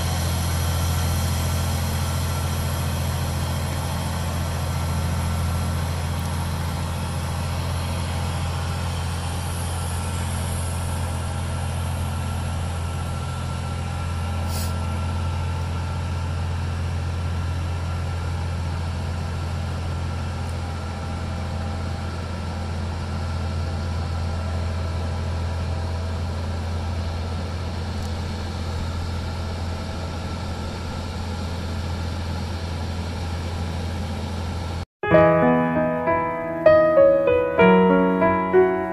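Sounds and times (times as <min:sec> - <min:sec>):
aircraft tug engine drone: 0:00.0 - 0:24.3
brief high squeak: 0:14.5 - 0:14.8.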